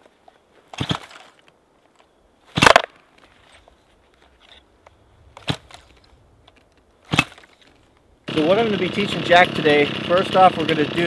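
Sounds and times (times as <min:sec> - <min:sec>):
chainsaw starter cord pulls: 0:05.4 - 0:11.0.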